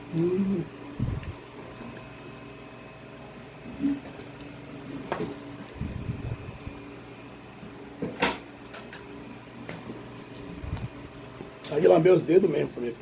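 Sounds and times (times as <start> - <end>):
chewing: 0.0 - 2.4
steady low hum: 0.0 - 13.0
lip smacks: 1.0 - 2.3.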